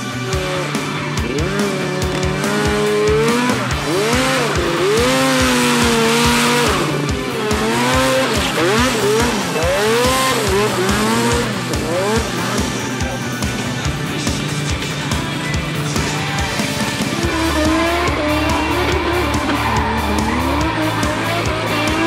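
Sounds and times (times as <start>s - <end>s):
engine revving: 0.0s - 22.0s
rock music with drum beat: 0.0s - 22.0s.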